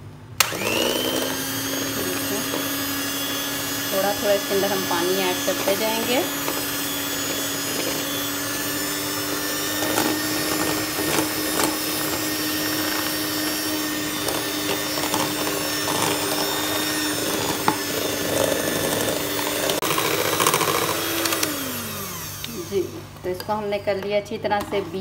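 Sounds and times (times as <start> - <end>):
electric hand mixer beating batter: 0.4 - 23.0.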